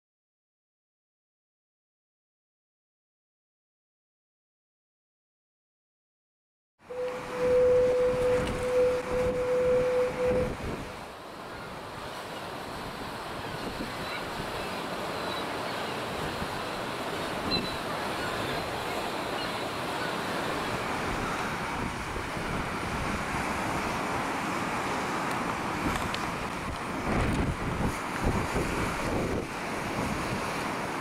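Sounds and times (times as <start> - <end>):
waves breaking: 6.9 - 31.0
wind buffeting microphone: 7.3 - 11.0, 20.8 - 24.2, 25.6 - 31.0
wind rushing: 7.3 - 11.0.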